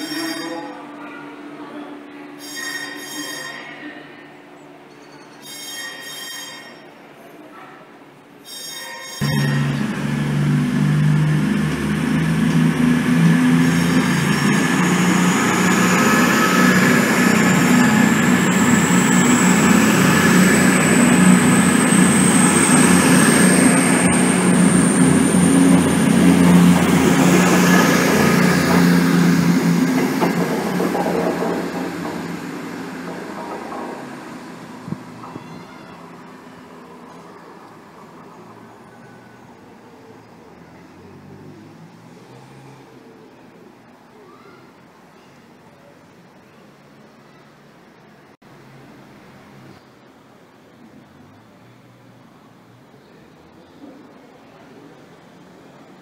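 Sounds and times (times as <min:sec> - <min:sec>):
diesel engine drone: 0:09.2 - 0:35.3
high whine rising in pitch: 0:09.2 - 0:35.3
train wheel rumble: 0:09.2 - 0:37.2.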